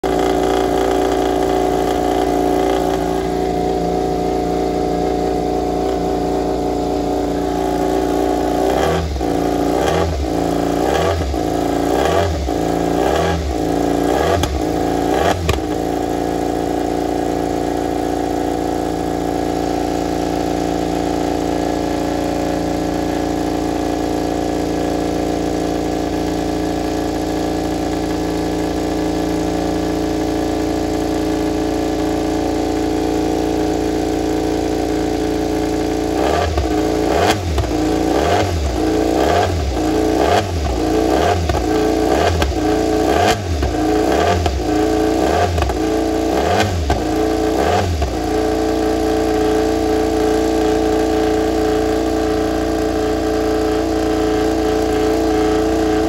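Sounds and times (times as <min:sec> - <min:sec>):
motorcycle throttle blips: 0:00.0 - 0:17.2
motorcycle engine idling: 0:00.0 - 0:56.0.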